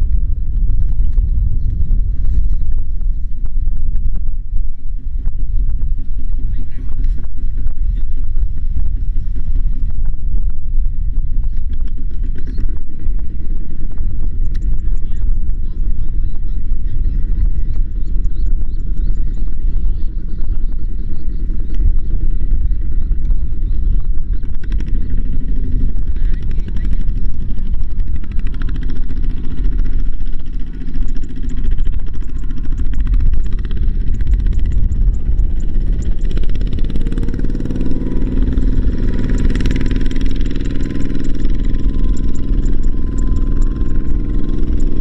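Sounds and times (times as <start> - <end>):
diesel engine chugging: 14.3 - 45.0.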